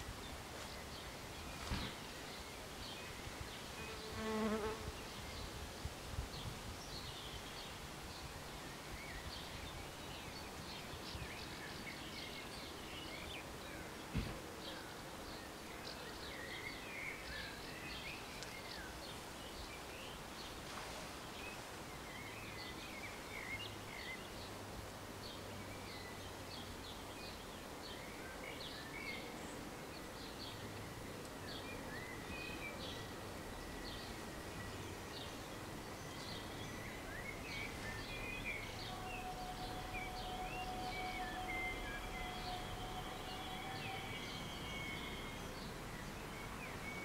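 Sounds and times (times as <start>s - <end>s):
steady background hiss: 0.0s - 47.0s
faint high tone: 38.5s - 45.5s.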